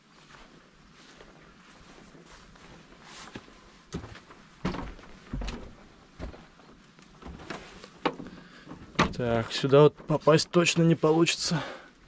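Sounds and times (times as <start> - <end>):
footsteps on plank boards: 1.0 - 9.1.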